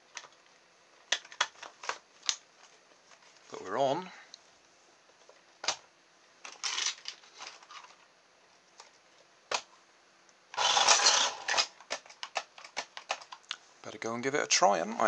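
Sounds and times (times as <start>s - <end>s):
small electric motor whirring: 10.6s - 11.7s.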